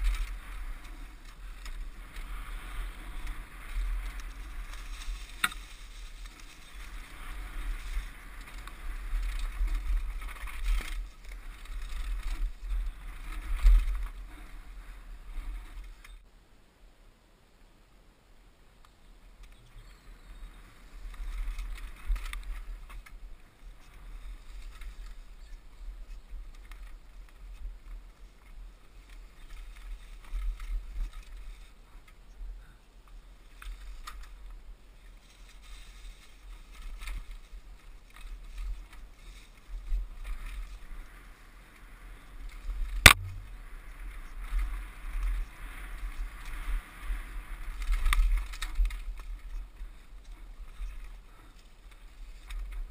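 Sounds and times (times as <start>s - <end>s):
bike rattling over bumps: 0.0s - 16.2s, 20.8s - 31.8s
bike tyres rolling on dirt: 0.0s - 16.3s, 18.9s - 52.9s
wind on microphone: 38.4s - 51.0s
sharp knock: 43.1s - 43.5s.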